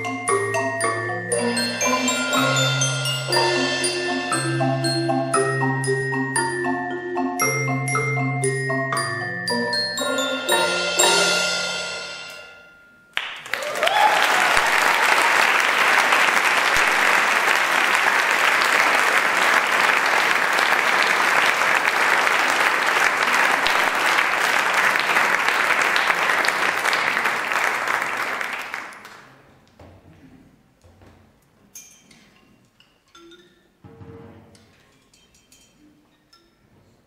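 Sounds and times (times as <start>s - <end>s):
marimbas and xylophone ringing: 0.0s - 13.2s, 32.9s - 33.8s
audience applause: 13.2s - 29.4s.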